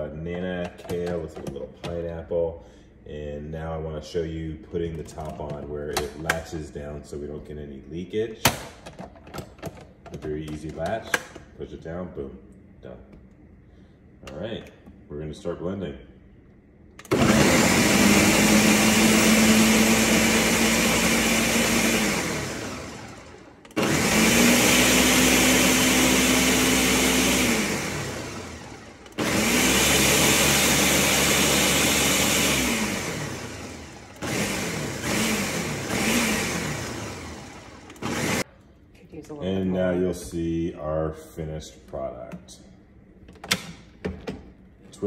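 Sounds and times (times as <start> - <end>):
blender motor running: 17.0 - 38.5.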